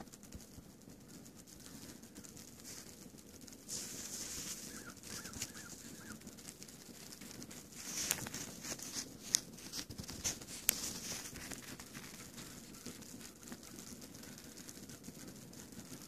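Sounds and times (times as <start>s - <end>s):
footsteps crunching on snow: 3.7s - 6.2s, 7.1s - 12.8s.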